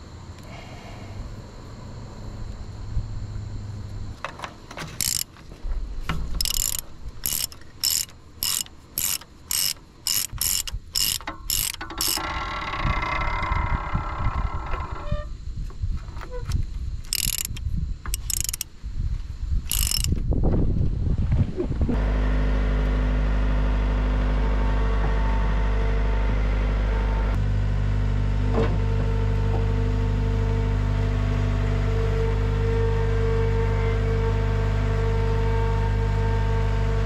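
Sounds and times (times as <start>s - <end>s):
mechanical whir: 2.9s - 5.4s, 6.2s - 18.7s, 19.5s - 21.0s
ratchet wrench clicking: 5.0s - 5.3s, 6.4s - 13.3s, 17.0s - 18.7s, 19.7s - 20.2s.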